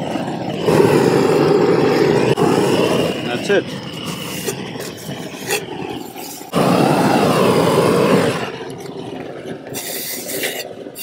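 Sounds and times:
roofing torch flame rushing: 0:00.0 - 0:11.0.

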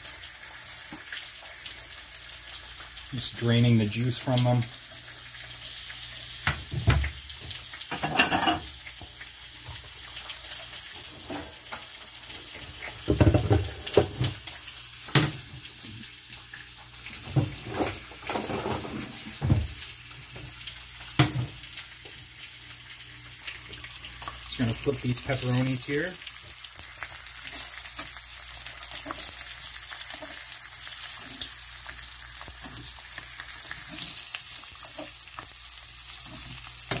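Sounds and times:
meat sizzling in a pan: 0:00.0 - 0:37.0.

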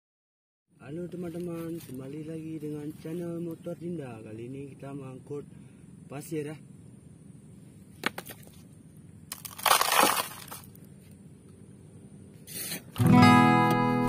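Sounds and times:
sand and gravel pouring into plastic: 0:09.3 - 0:10.7
acoustic guitar music: 0:12.6 - 0:14.0.

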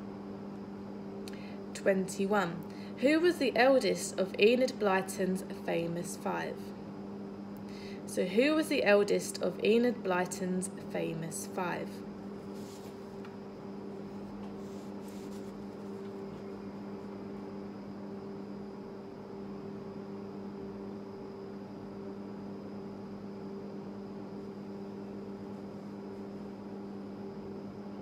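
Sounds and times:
low electrical hum: 0:00.0 - 0:28.0
faint rustles: 0:12.4 - 0:13.4, 0:14.0 - 0:17.1.

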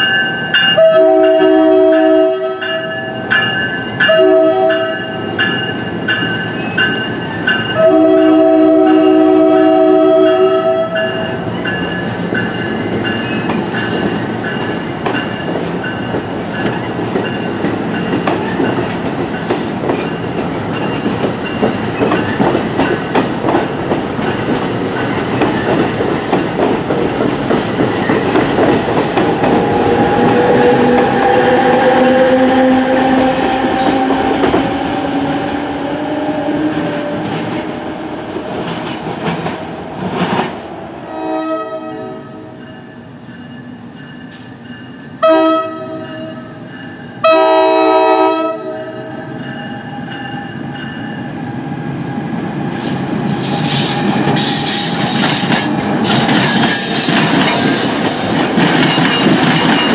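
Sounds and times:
rising train whine: 0:00.0 - 0:59.9
train wheels clacking over rail joints: 0:11.7 - 0:31.0, 0:52.7 - 0:59.9.

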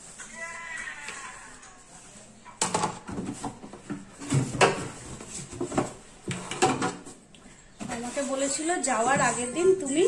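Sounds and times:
plastic containers knocking: 0:02.6 - 0:07.2.

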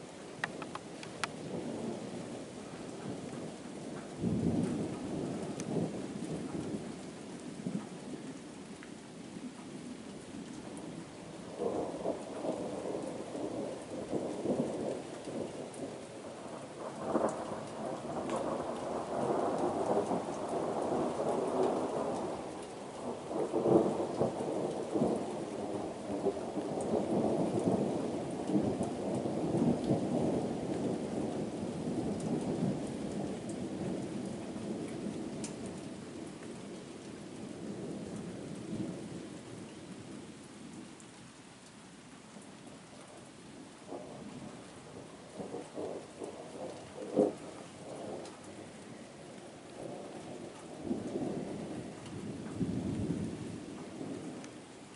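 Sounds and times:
thunder rumbling: 0:00.0 - 0:07.0, 0:11.4 - 0:36.2, 0:43.8 - 0:54.5
steady rain: 0:00.0 - 0:54.9.

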